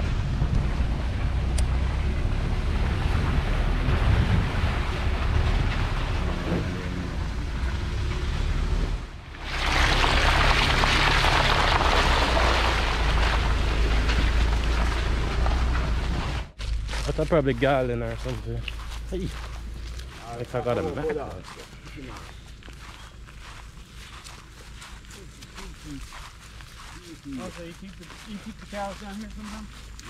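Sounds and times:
wind on microphone: 0.0s - 6.6s
truck engine rumble: 0.0s - 30.0s
tyres rolling over leaves and dirt: 2.2s - 8.8s, 9.4s - 30.0s.

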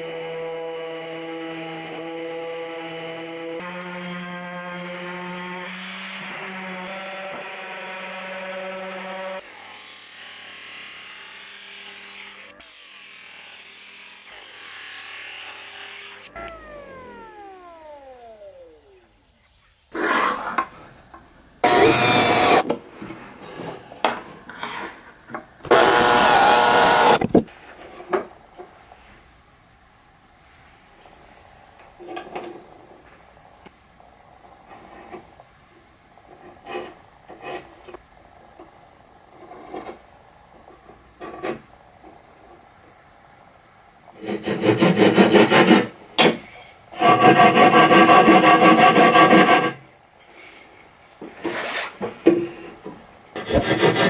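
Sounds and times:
cordless drill whining: 16.3s - 19.0s, 21.6s - 22.6s, 25.7s - 27.2s
hand saw rasping through wood: 44.2s - 45.9s, 47.0s - 49.8s, 53.4s - 54.0s.

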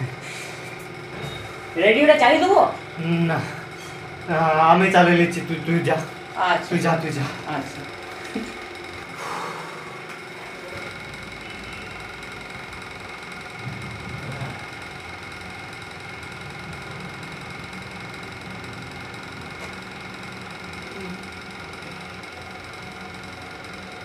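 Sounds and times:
fan motor humming: 0.0s - 24.0s.

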